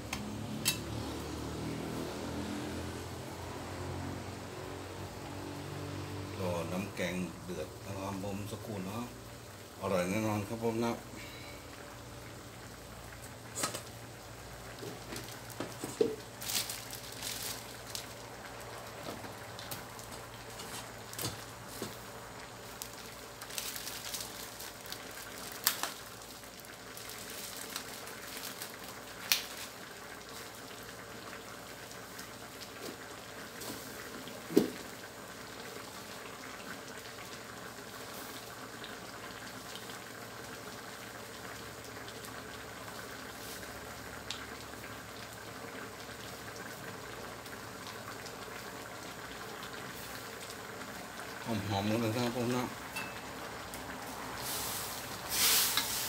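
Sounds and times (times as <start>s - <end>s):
curry bubbling in a wok: 0.0s - 56.0s
sharp pops and spits: 13.5s - 14.0s.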